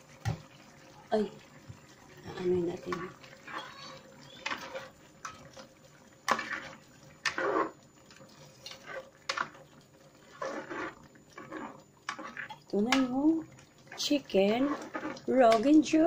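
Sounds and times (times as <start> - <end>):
wet liquid sounds: 0.0 - 16.0
utensil scraping a pan: 2.8 - 5.6, 6.3 - 13.2, 13.9 - 16.0.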